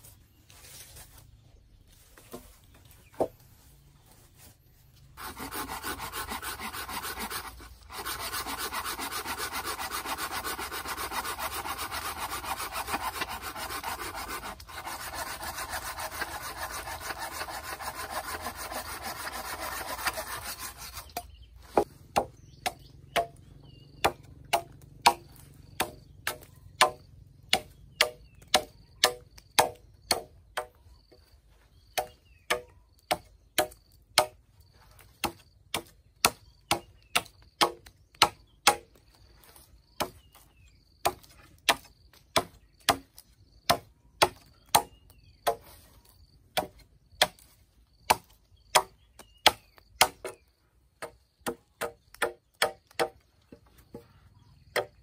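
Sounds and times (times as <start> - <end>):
blade chopping wood: 21.0 - 23.4, 24.0 - 30.8, 35.2 - 38.8, 48.1 - 50.4.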